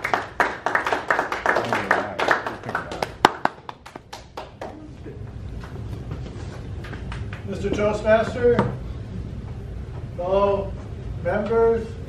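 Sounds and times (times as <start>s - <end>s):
small audience applauding: 0.0s - 4.9s, 6.8s - 7.5s.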